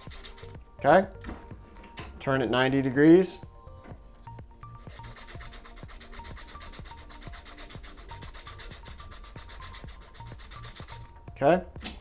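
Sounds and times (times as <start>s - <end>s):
sandpaper scratching: 0.0s - 0.6s, 4.8s - 11.1s.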